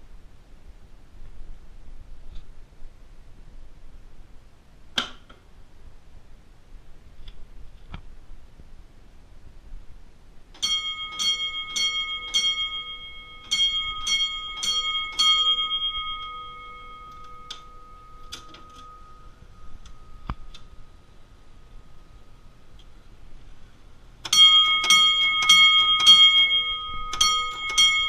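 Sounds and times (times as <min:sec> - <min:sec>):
fire alarm bells striking: 0:10.6 - 0:21.0, 0:24.2 - 0:28.0.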